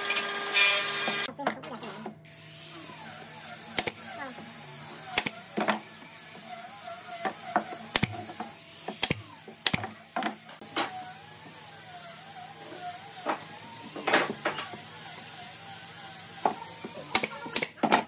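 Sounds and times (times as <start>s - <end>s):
knocks and clicks of tools: 3.7s - 4.0s, 7.2s - 11.0s.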